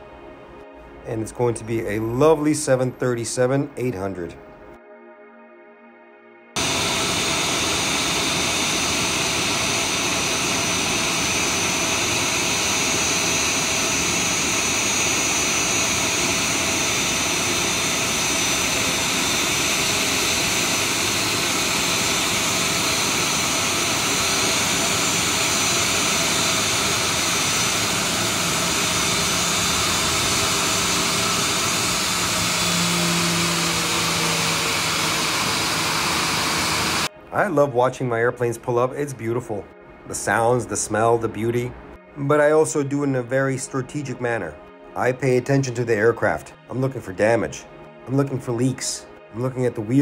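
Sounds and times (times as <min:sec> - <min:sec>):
jet engines idling: 0:06.6 - 0:37.1.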